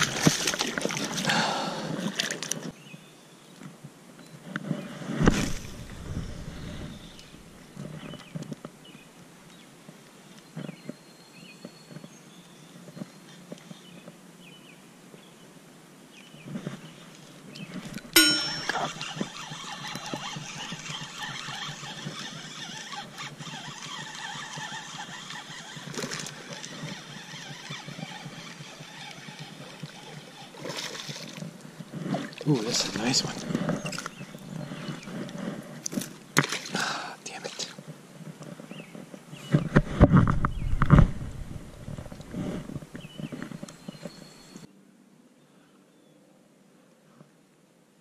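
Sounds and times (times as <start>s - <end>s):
fishing reel gears whirring: 18.2s - 30.8s.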